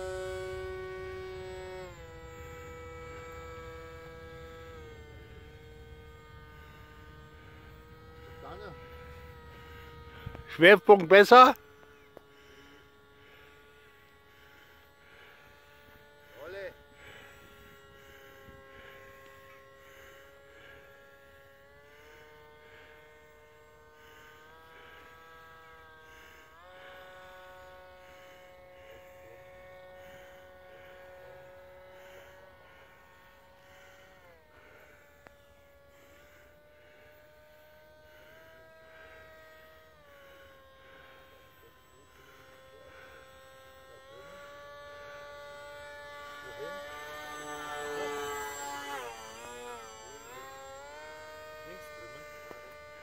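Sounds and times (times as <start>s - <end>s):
model plane motor whining: 0.0s - 53.0s.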